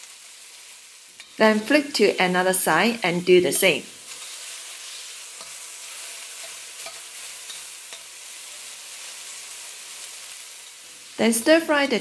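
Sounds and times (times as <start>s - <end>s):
chicken sizzling in hot oil: 0.0s - 12.0s
metal spatula tapping wok: 5.4s - 5.6s, 6.4s - 8.2s.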